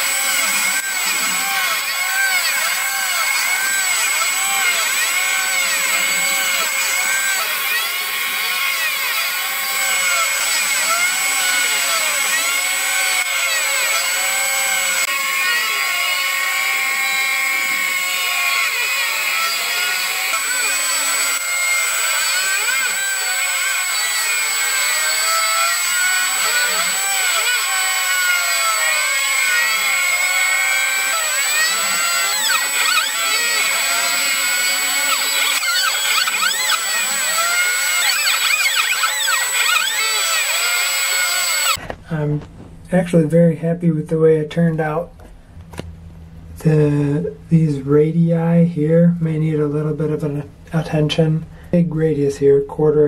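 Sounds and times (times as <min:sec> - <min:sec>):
milling machine spindle whine: 0:00.0 - 0:41.8
drive motors rising and falling: 0:00.0 - 0:42.7.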